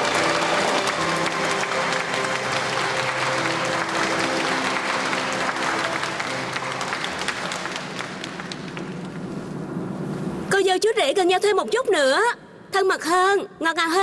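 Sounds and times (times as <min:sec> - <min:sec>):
background music with held notes: 0:00.0 - 0:08.4
crowd applauding: 0:00.0 - 0:09.4.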